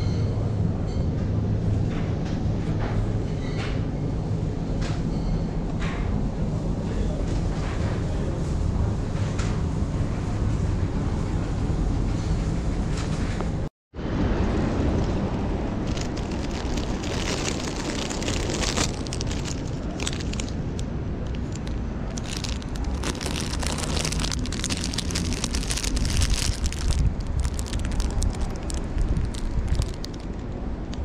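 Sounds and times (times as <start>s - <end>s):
low background rumble: 10.6s - 31.0s
canvas tote rustling: 15.8s - 20.6s, 21.3s - 30.3s
plastic bags crinkling: 15.8s - 30.5s.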